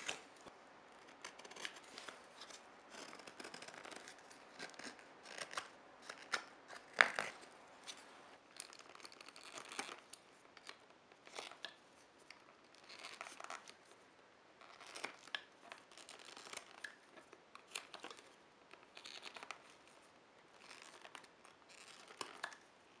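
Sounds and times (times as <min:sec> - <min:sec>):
knife carving wood shavings: 0:01.0 - 0:07.4.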